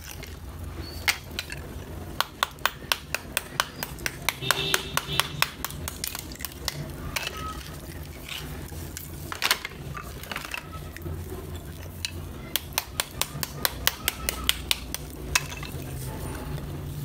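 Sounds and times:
small hammer tapping clay: 0:02.2 - 0:06.8, 0:12.0 - 0:15.5
clay slabs clinking and scraping: 0:05.4 - 0:16.5.

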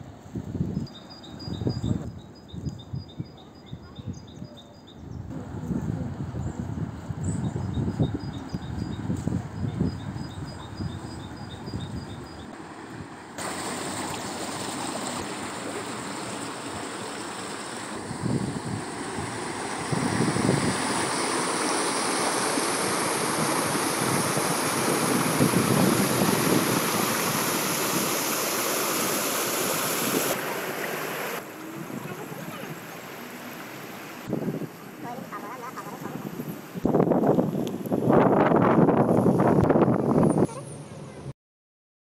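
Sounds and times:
brook rushing over stones: 0:13.4 - 0:34.3.

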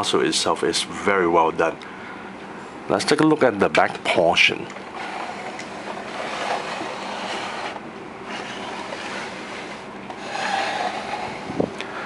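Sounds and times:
plastic toy scraping on table: 0:05.0 - 0:11.7.

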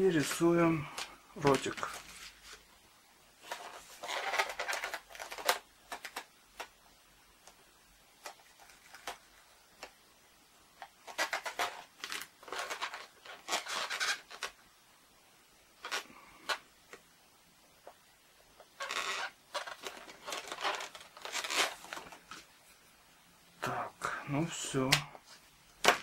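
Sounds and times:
balloons rubbing and creaking: 0:00.0 - 0:02.7, 0:03.4 - 0:06.7, 0:10.8 - 0:14.6, 0:15.8 - 0:16.7, 0:17.8 - 0:22.5
marker scratching on balloon: 0:11.1 - 0:14.5, 0:18.6 - 0:21.8.

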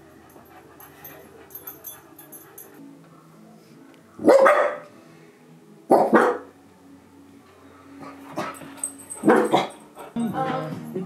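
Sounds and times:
small dogs barking: 0:04.2 - 0:04.9, 0:05.9 - 0:06.5, 0:08.0 - 0:10.2.

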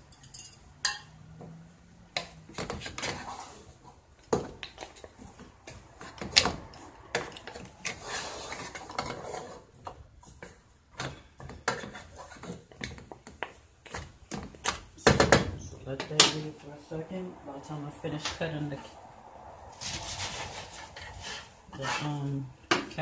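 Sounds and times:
spoon scraping pot: 0:02.2 - 0:13.0, 0:19.8 - 0:23.0.

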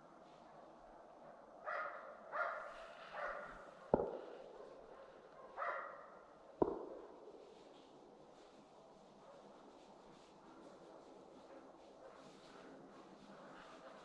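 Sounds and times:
dog barking: 0:01.2 - 0:06.3.

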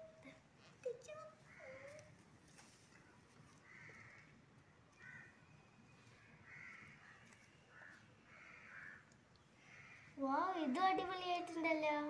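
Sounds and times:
crow cawing: 0:01.5 - 0:02.0, 0:03.6 - 0:04.4, 0:05.0 - 0:05.4, 0:06.4 - 0:10.2.

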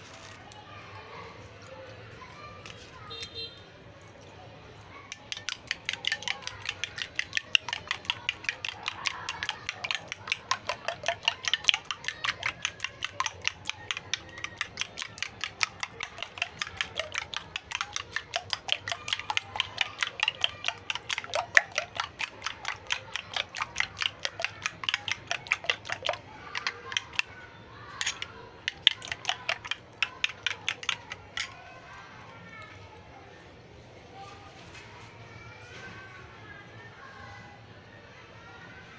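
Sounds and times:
metal spoon clinking ceramic bowl: 0:05.1 - 0:27.3, 0:28.0 - 0:31.6.

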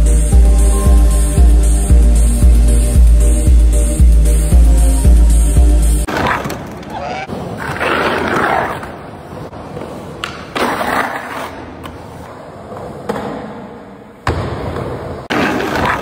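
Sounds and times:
skateboard wheels rolling on concrete: 0:06.0 - 0:16.0.

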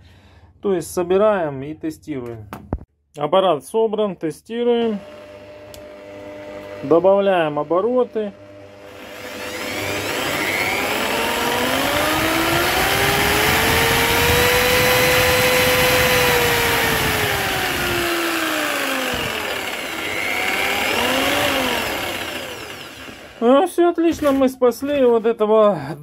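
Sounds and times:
electric jigsaw motor running: 0:04.8 - 0:23.6.

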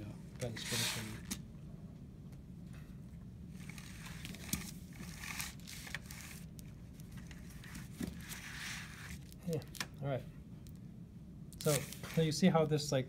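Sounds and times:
paper and triangle shifting: 0:00.4 - 0:01.4, 0:03.6 - 0:09.8, 0:11.6 - 0:12.4.

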